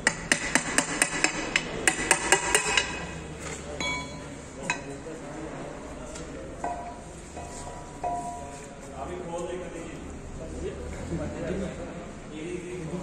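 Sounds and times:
sharp metallic knocks: 0:00.0 - 0:03.2
ringing metal clinks: 0:03.8 - 0:04.4.

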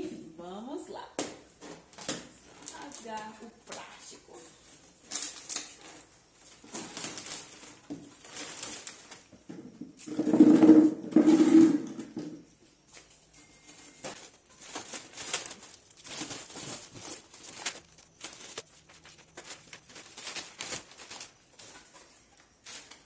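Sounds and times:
plastic film crinkling: 0:01.8 - 0:09.5, 0:12.9 - 0:23.0.

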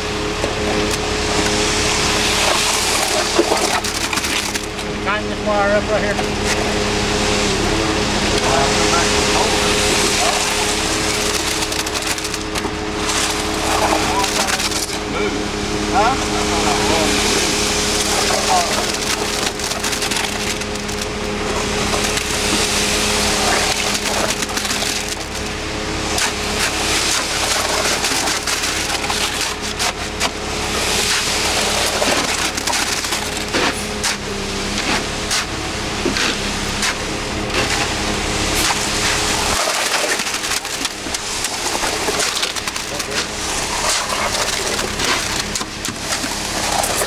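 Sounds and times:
truck engine hum: 0:00.0 - 0:47.0
wet concrete scraping and crunching: 0:00.0 - 0:47.0.

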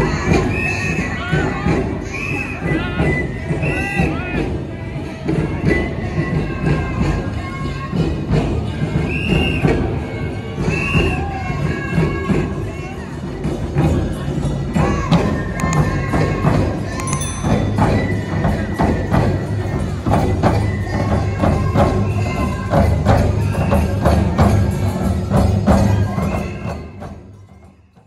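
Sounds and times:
taiko drums: 0:00.0 - 0:28.0
metal hand cymbals ringing: 0:17.0 - 0:19.9.

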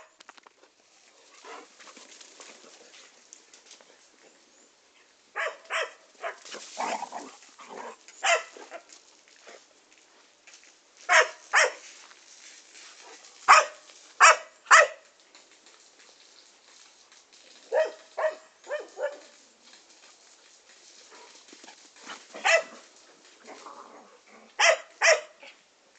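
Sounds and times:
dog barking: 0:05.4 - 0:06.4, 0:08.2 - 0:08.6, 0:11.1 - 0:11.8, 0:13.5 - 0:15.0, 0:17.7 - 0:19.3, 0:22.4 - 0:22.8, 0:24.6 - 0:25.4.

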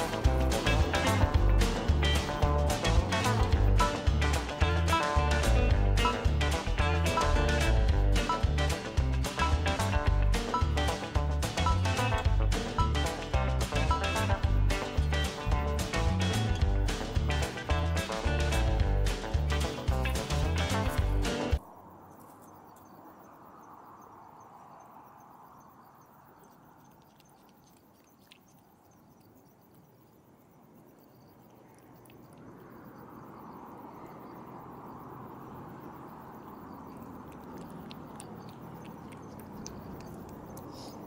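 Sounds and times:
cat lapping milk: 0:26.8 - 0:29.4, 0:36.8 - 0:40.8.

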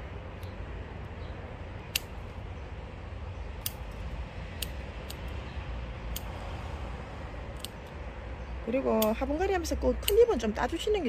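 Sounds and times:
garden scissors snipping: 0:01.8 - 0:02.4, 0:03.6 - 0:05.4, 0:06.0 - 0:06.6, 0:07.4 - 0:08.0, 0:08.7 - 0:11.0.

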